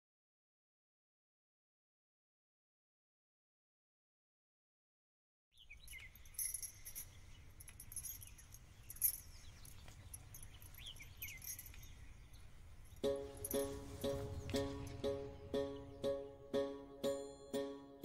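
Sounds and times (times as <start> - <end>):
high falling chirps: 5.7 - 18.0
light ticks: 5.9 - 12.0
music with a steady beat: 13.0 - 18.0
low rumble: 13.3 - 16.4.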